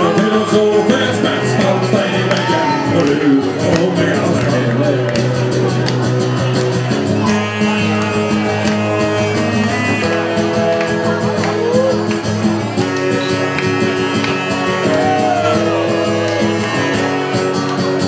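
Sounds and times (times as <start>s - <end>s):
strummed acoustic guitar: 0.0s - 18.0s
melody line with bending notes: 4.6s - 18.0s.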